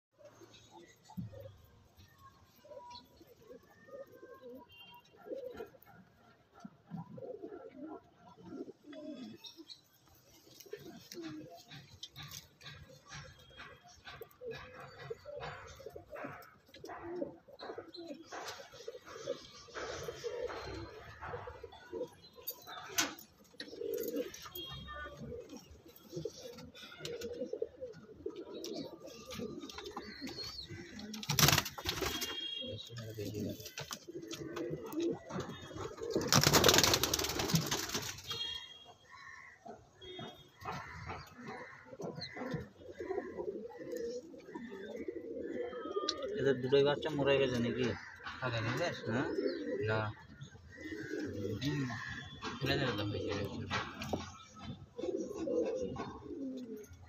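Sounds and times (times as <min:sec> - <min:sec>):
pigeons cooing: 0:00.2 - 0:57.0
pigeons scuffling: 0:25.3 - 0:32.6, 0:33.3 - 0:38.6.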